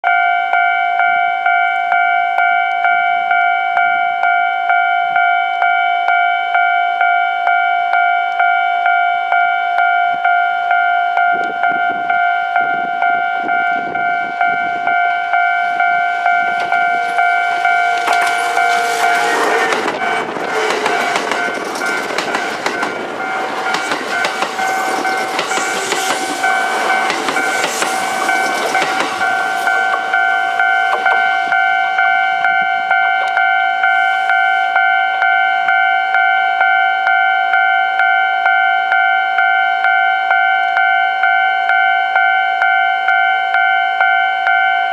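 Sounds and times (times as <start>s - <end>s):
level crossing bell ringing: 0.0s - 44.9s
train passing with loud rush: 11.3s - 35.9s
train wheels clattering over rails: 16.5s - 31.6s.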